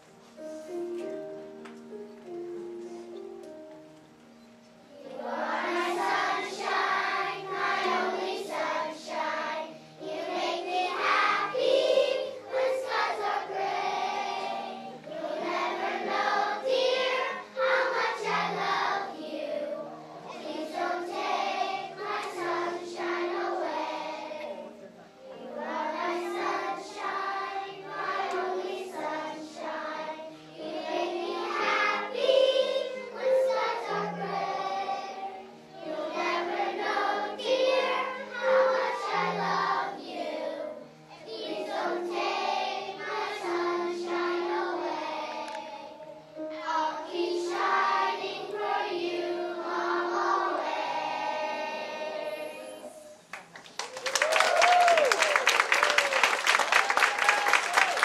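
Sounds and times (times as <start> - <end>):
instrumental accompaniment: 0.0 - 53.6
children's choir singing: 4.8 - 53.6
audience applause: 53.3 - 58.0.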